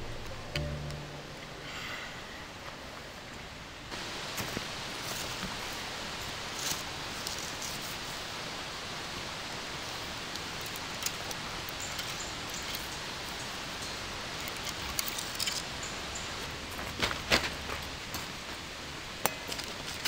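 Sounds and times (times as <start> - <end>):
outdoor background hiss: 0.0 - 20.0
firewood clicking and knocking: 19.2 - 20.0.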